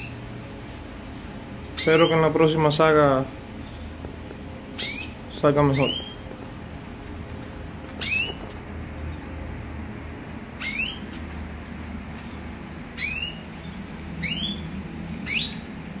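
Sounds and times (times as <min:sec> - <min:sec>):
canary call notes: 0:01.6 - 0:02.6, 0:03.6 - 0:06.2, 0:07.9 - 0:09.9, 0:10.5 - 0:11.1, 0:12.7 - 0:16.0.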